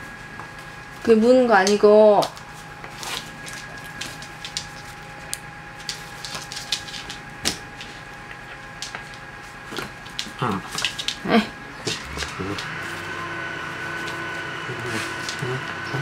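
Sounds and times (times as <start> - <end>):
dog claws on wooden floor: 1.7 - 13.1
dog vocal sounds: 9.7 - 12.8, 14.5 - 16.0.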